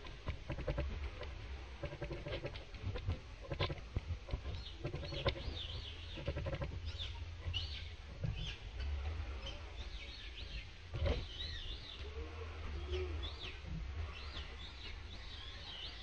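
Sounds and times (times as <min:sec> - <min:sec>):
sharp clicks and rustles: 0:00.0 - 0:08.5
low steady rumble: 0:00.0 - 0:16.0
birds chirping: 0:01.8 - 0:16.0.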